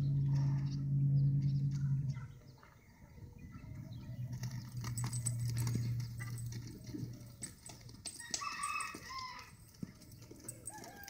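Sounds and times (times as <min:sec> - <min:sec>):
low steady hum: 0:00.0 - 0:08.2
hoof steps on dirt: 0:03.6 - 0:11.0
small clinks: 0:04.3 - 0:11.0.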